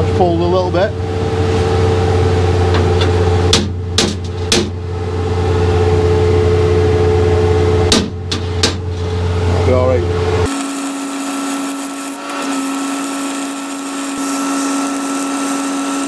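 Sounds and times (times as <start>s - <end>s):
steady engine hum: 0.0s - 10.6s.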